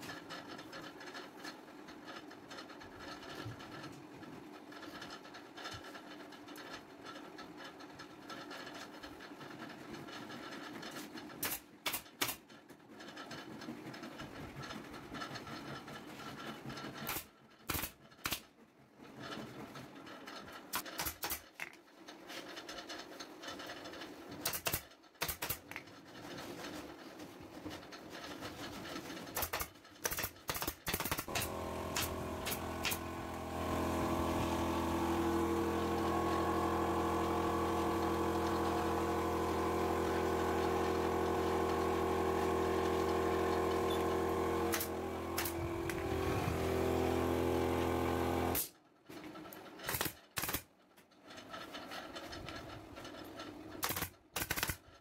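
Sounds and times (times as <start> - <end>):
staple gun firing into wood: 17.1 - 18.4, 20.8 - 21.5, 24.4 - 25.8, 29.4 - 33.0, 44.7 - 45.6, 49.9 - 50.7, 53.8 - 54.8
air compressor motor humming: 31.2 - 48.7.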